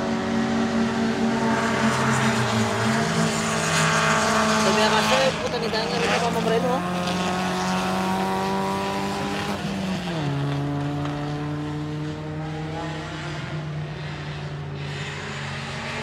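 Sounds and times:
race car engine at high revs: 0.0 - 16.0.

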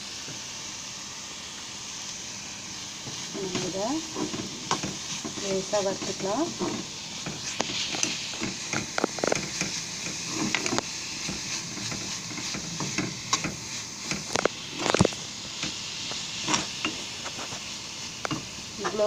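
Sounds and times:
onions sizzling in oil: 0.0 - 19.0
spatula tapping and scraping pan: 3.4 - 17.1.

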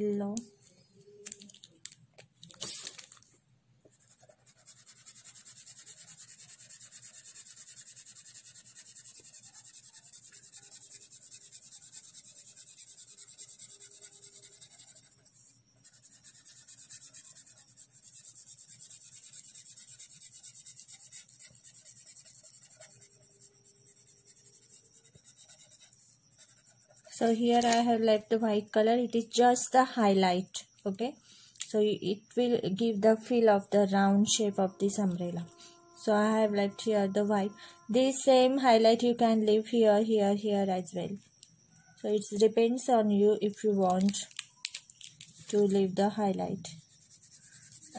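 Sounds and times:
pen scratching on paper: 3.9 - 27.4.

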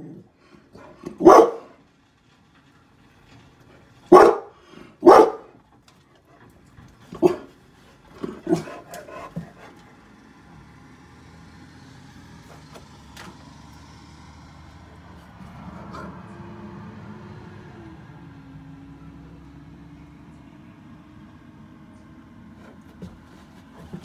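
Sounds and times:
dog barking: 0.8 - 1.8, 4.1 - 5.6, 7.2 - 7.5, 8.4 - 9.3
garbage truck engine running: 1.0 - 5.6.

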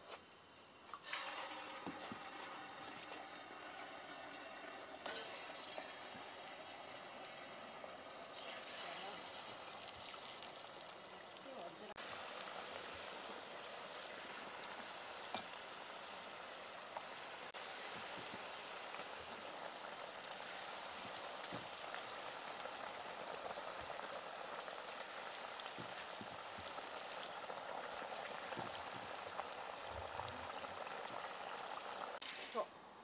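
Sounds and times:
oil sizzling: 0.0 - 33.0.

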